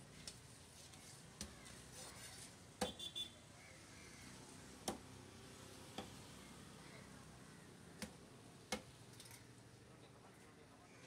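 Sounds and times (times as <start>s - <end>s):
cleaver chopping on wooden block: 4.8s - 5.0s.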